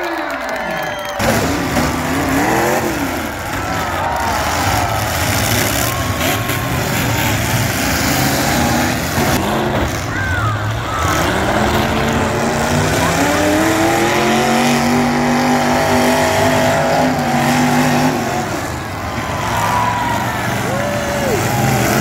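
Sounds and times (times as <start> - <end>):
car engines running hard: 0.0 - 22.0
engine revving up: 1.1 - 22.0.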